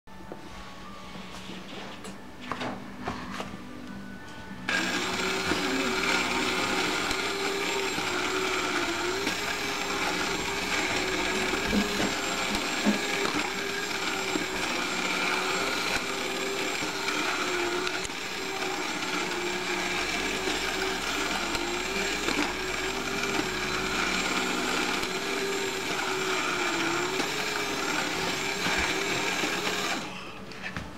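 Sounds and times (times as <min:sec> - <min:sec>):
toy motor whirring: 0:04.7 - 0:30.1.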